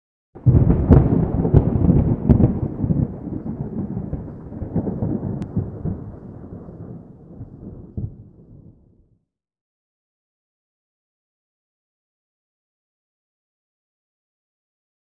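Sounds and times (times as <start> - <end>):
thunder-like rumble with cracks: 0.4 - 9.1.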